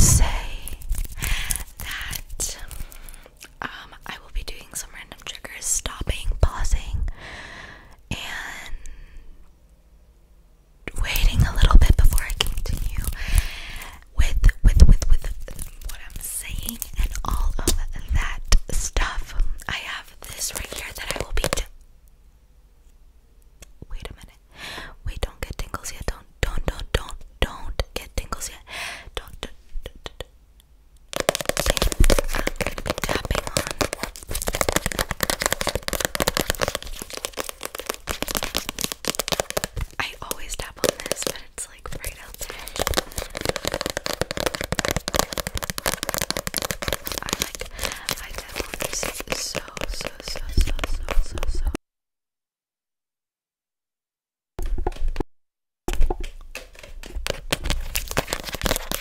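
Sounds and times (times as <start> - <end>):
paper crinkling on microphone: 0.0 - 3.3, 10.9 - 13.5, 14.5 - 18.4, 20.1 - 21.7, 31.1 - 51.8, 56.5 - 59.0.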